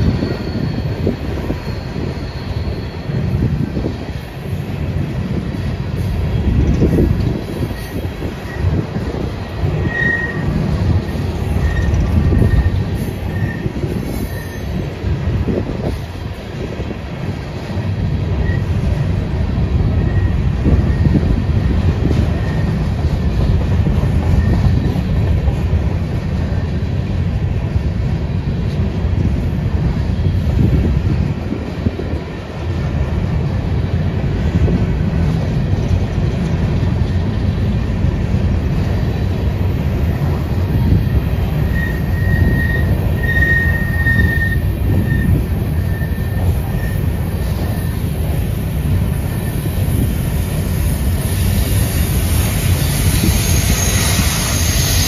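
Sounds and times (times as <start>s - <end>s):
wheel squeal: 0.0s - 3.6s, 7.6s - 14.9s, 18.4s - 18.8s, 20.0s - 21.2s, 22.2s - 22.9s, 24.2s - 25.1s, 40.9s - 48.1s, 51.2s - 55.0s
train wheels rumbling on rails: 0.0s - 55.0s.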